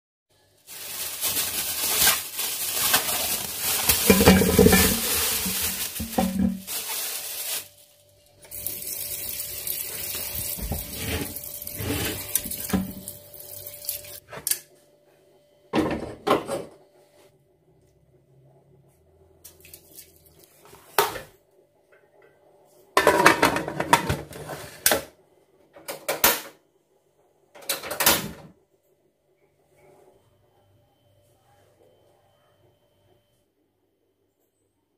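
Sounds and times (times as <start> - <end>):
metal pot clanking: 3.8 - 6.6
tap water running into metal pot: 8.5 - 14.2.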